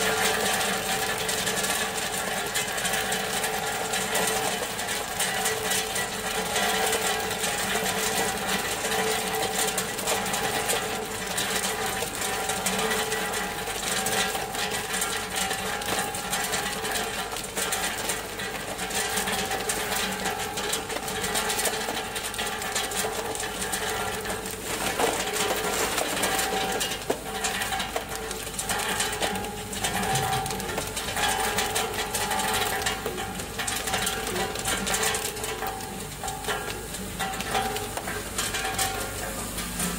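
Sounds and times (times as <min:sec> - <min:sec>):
ice clattering into a bin: 0:00.0 - 0:39.9.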